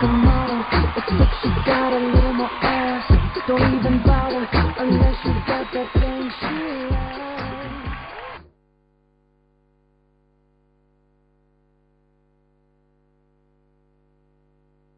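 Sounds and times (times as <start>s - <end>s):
hip-hop song with sung vocal: 0.0s - 8.2s.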